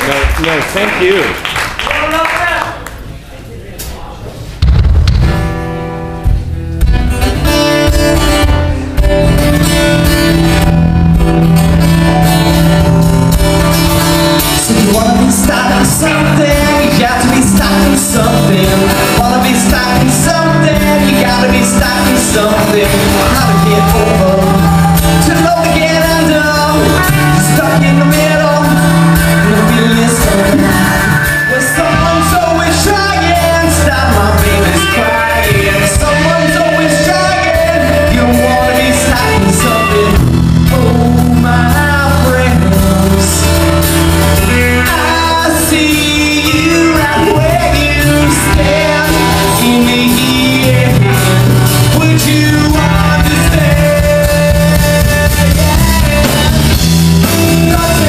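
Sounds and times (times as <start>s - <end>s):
live rock band playing: 4.6s - 58.0s
man singing lead vocal: 14.4s - 58.0s.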